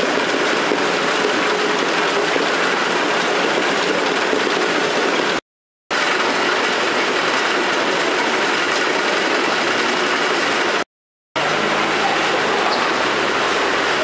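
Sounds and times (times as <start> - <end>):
packing-line machinery running: 0.0 - 14.0.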